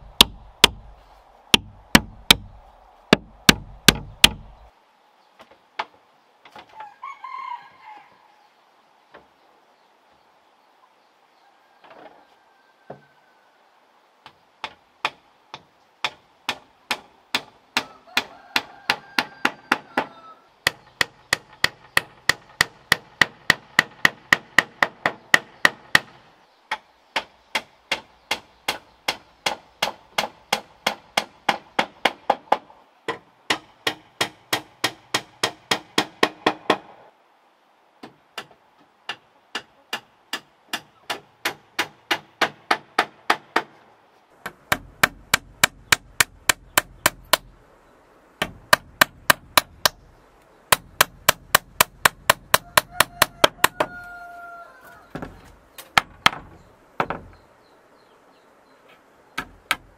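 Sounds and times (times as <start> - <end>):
hammering bamboo slats: 0.0 - 4.7, 14.2 - 37.1, 38.0 - 47.6, 48.4 - 57.4, 59.4 - 59.9.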